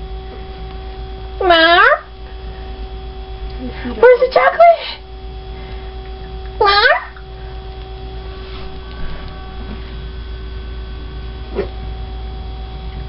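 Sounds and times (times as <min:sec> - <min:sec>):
electrical hum: 0:00.0 - 0:13.0
faint pitched call: 0:01.4 - 0:02.2, 0:06.6 - 0:07.4.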